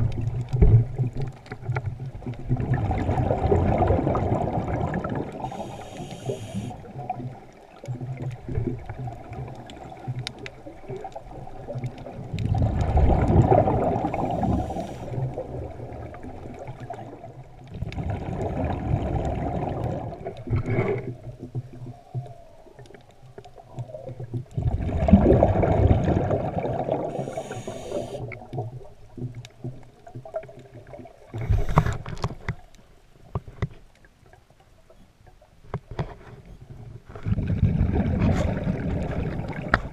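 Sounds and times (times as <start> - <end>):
exhaled bubbles underwater: 0.0 - 32.3, 37.2 - 39.9
regulator hissing inhalations: 5.4 - 6.8, 14.4 - 15.2, 27.2 - 28.3.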